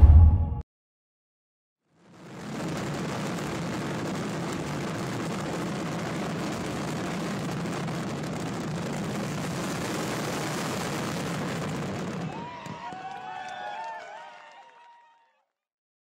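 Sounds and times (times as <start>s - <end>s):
low rumble: 0.0s - 0.6s.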